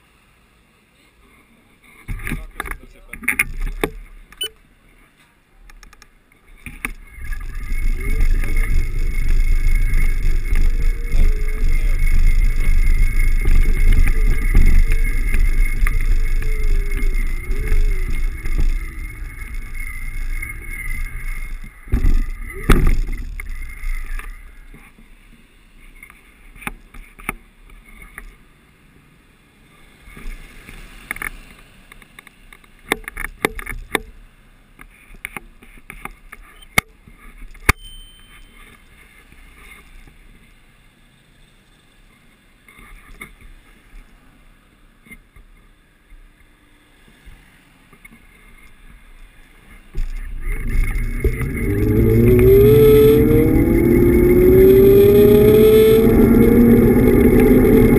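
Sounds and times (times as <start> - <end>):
car passing and accelerating: 29.8 - 32.4, 50.4 - 57.9
small clicks and knocks: 30.2 - 34.2, 34.8 - 37.8.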